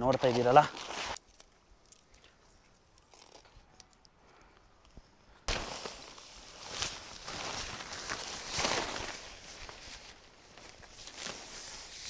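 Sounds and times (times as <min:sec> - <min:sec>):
tent fabric rustling: 0:00.2 - 0:01.2, 0:05.5 - 0:12.0.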